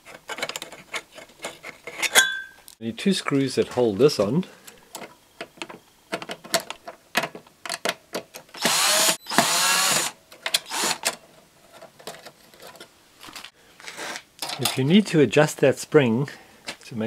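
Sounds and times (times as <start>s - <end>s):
power screwdriver motor: 8.6s - 11.0s.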